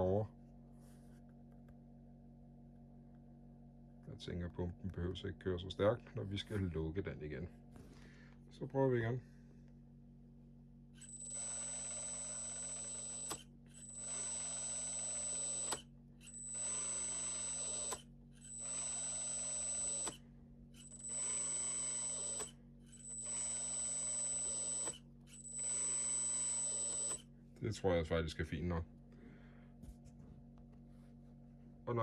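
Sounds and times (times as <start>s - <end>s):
electric hydraulic pump whining: 11.0s - 27.3s.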